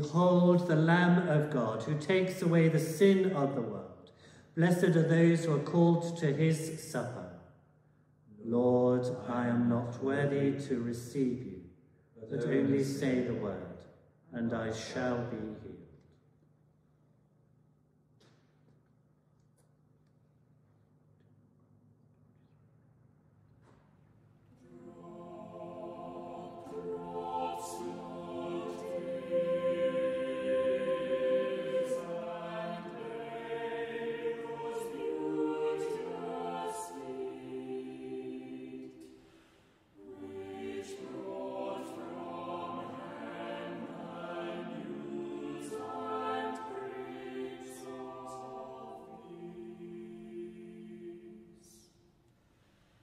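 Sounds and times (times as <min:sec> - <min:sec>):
choir singing: 0:08.4 - 0:11.4, 0:12.2 - 0:13.6, 0:24.6 - 0:52.0.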